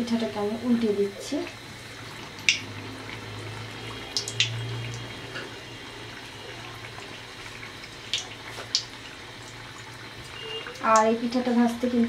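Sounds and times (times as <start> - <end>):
hot oil sizzling and bubbling: 0.0 - 12.0
sharp clicks: 2.4 - 2.6.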